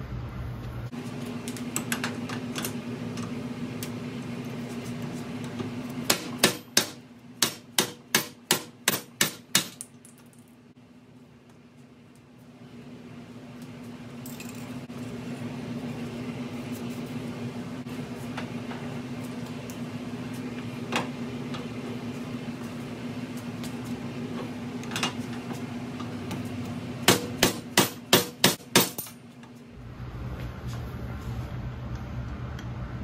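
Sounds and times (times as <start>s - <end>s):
hammer striking metal: 6.0s - 9.8s, 27.1s - 29.2s.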